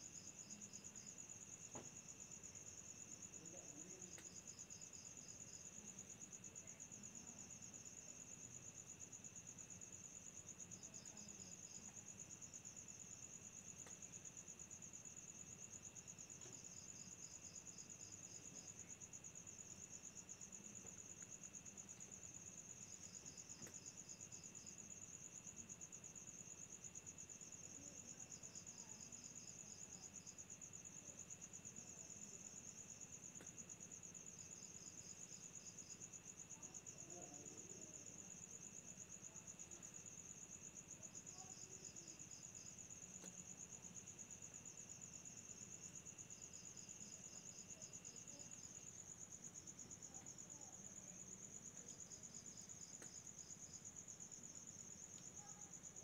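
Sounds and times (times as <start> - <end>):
crickets chirping: 0.0 - 56.0.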